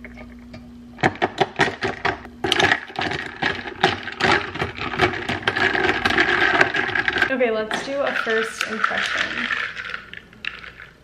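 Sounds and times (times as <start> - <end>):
low steady hum: 0.0 - 11.0
ice cubes clinking in glass: 2.5 - 11.0.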